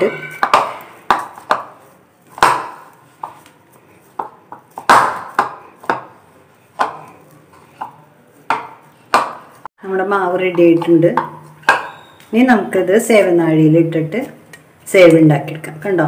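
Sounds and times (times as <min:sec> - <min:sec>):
hands kneading dough in a bowl: 0:00.2 - 0:09.7.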